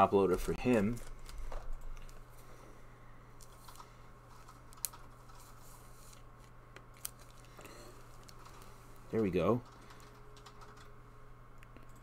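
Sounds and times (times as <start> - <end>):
steady low hum: 0.0 - 12.0
plastic card sleeve handling: 4.4 - 7.5.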